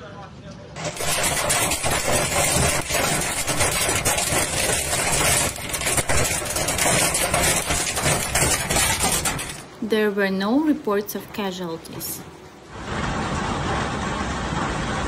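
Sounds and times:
hail drumming on vehicle: 0.8 - 9.8.

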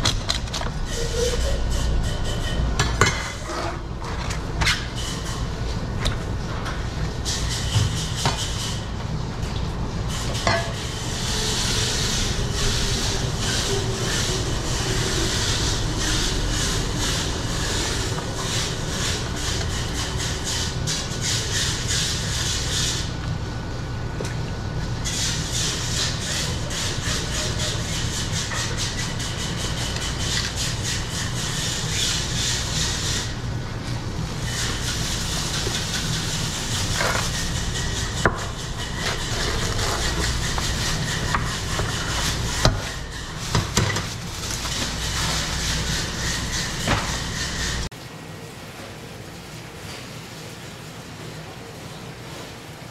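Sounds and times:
steady low hum: 0.0 - 47.9
knife scraping on cutting board: 34.5 - 47.9.

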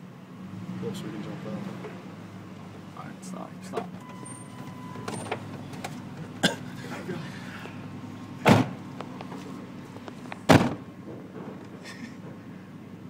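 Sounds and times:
truck doors slamming: 8.4 - 9.4, 10.2 - 12.4.

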